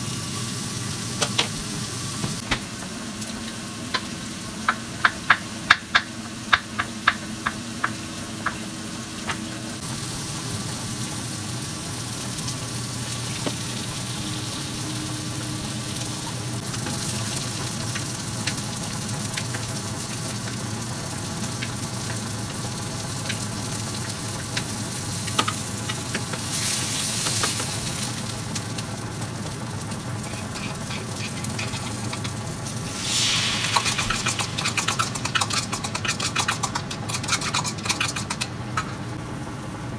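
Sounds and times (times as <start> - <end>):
food sizzling in a frying pan: 0.0 - 39.9
chopsticks stirring in pan: 30.2 - 32.4, 33.1 - 38.9.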